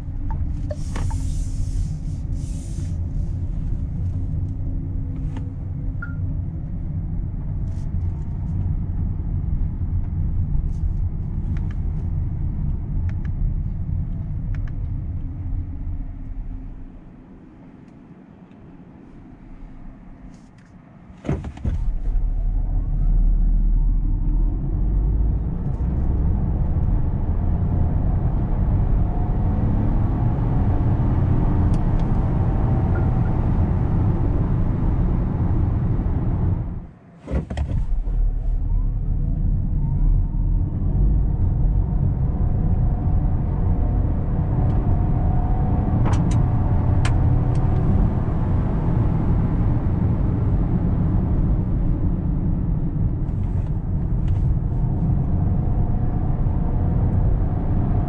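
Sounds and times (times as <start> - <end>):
click: 12.7 - 13.4.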